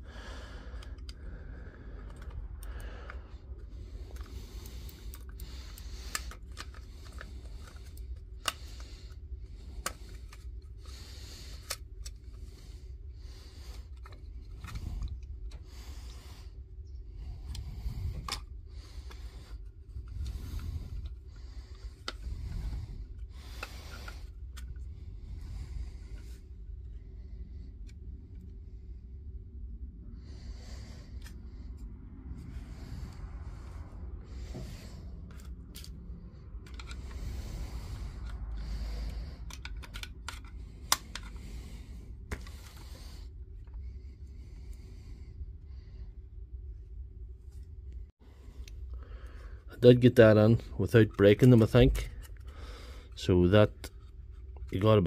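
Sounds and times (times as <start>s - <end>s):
steady low hum: 0.0s - 55.0s
plastic parts clicking and scraping: 0.8s - 1.2s, 1.9s - 16.2s, 17.4s - 27.0s, 34.3s - 43.9s, 48.6s - 55.0s.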